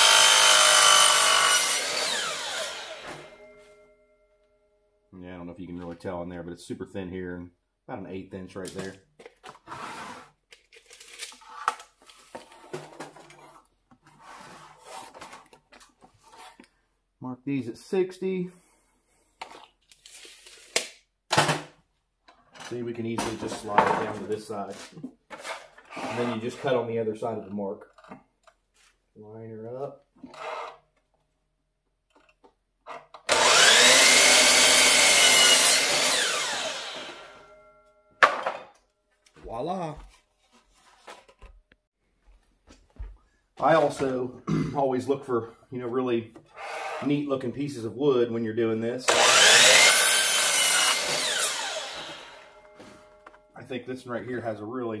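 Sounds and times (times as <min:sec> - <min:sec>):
electric saw cutting wood: 0:00.0 - 0:03.4, 0:33.3 - 0:37.6, 0:49.1 - 0:52.9.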